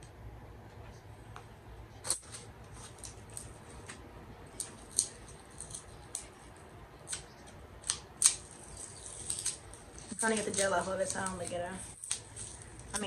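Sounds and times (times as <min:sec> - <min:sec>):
sticky gel clicks and crackles: 0:04.5 - 0:06.4, 0:07.0 - 0:13.0.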